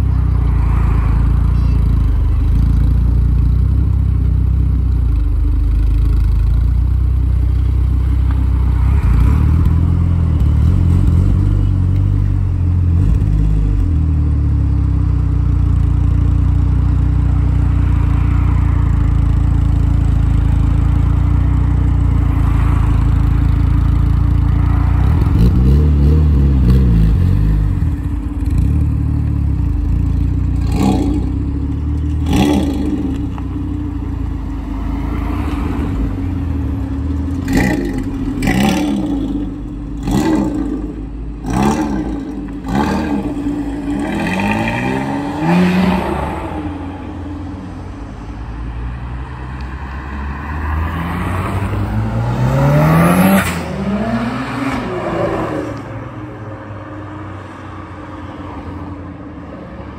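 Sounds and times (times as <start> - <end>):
car engines idling: 0.0 - 52.4
engine revving: 22.4 - 33.7, 34.5 - 47.2, 49.2 - 56.1.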